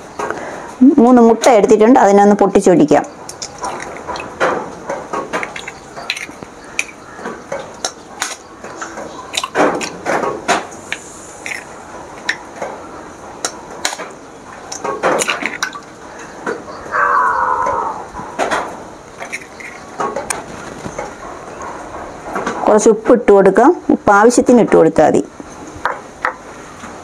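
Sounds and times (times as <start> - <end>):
eggshells cracking: 3.3 - 10.0, 11.4 - 12.4, 14.7 - 15.9, 19.1 - 21.1
eggs dropping into pot: 5.2 - 7.0, 14.7 - 15.9.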